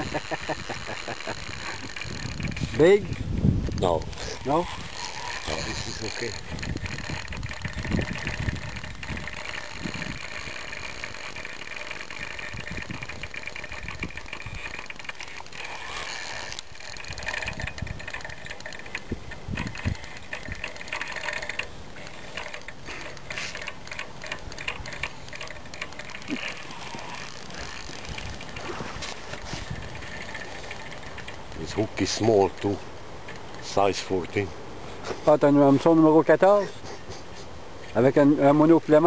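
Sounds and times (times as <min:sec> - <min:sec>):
fishing reel ratcheting: 0:00.0 - 0:34.5
low microphone rumbles: 0:02.0 - 0:11.0.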